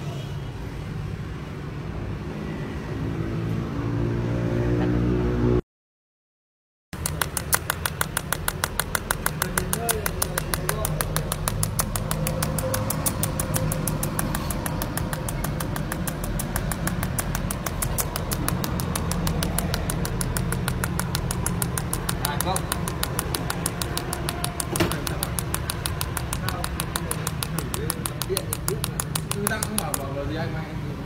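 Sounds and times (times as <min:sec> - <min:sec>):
welding arc ticking: 0:07.0 - 0:30.3.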